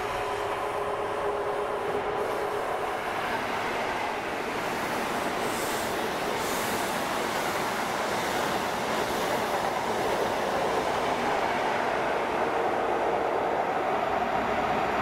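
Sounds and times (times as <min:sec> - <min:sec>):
train wheels running on rail: 0:00.0 - 0:15.0.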